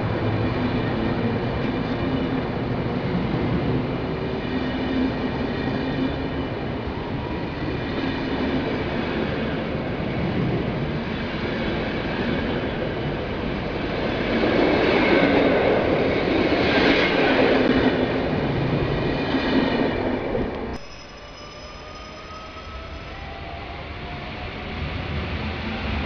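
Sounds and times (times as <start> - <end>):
electric train whine: 0.0 - 26.0
train wheels on rails: 0.0 - 26.0
wheels squealing: 20.8 - 23.6.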